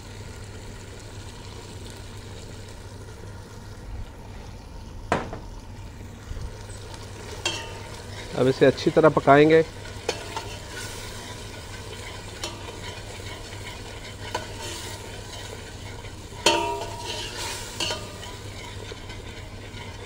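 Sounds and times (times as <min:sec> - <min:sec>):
food sizzling in a pot: 0:00.0 - 0:03.8, 0:05.1 - 0:20.0
metal ladle stirring and scraping: 0:07.2 - 0:20.0
ladle clanking against pot: 0:07.4 - 0:08.0, 0:10.0 - 0:20.0.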